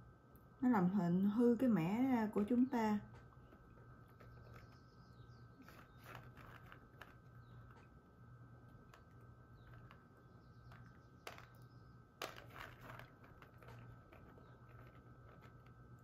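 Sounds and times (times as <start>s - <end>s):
peas rattling in plastic colander: 5.6s - 7.8s, 8.8s - 15.8s.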